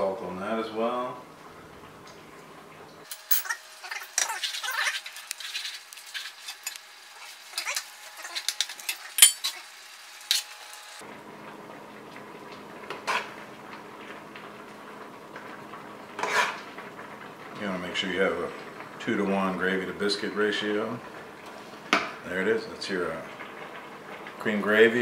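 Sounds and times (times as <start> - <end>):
metal utensils clinking and scraping: 3.1 - 10.6, 16.2 - 16.6.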